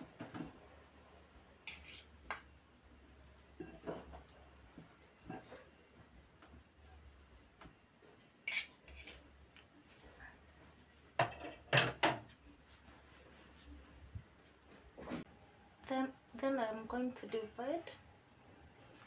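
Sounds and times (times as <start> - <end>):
cutlery clinking glass bowl: 8.5 - 9.2.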